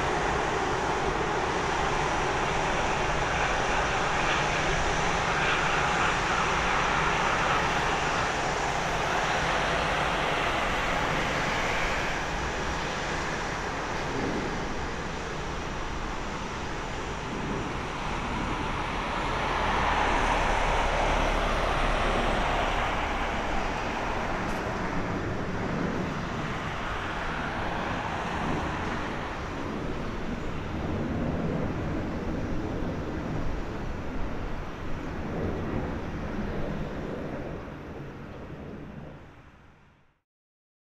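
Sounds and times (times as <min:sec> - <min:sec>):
jet engines rushing: 0:00.0 - 0:39.5.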